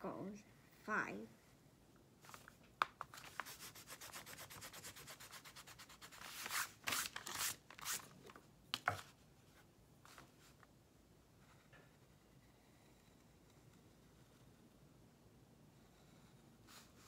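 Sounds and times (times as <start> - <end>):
pencil scratching on paper: 3.2 - 6.7.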